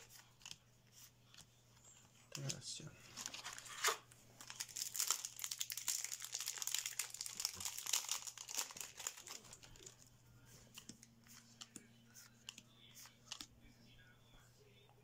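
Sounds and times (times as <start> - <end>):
foil wrapper crinkling: 3.3 - 10.0.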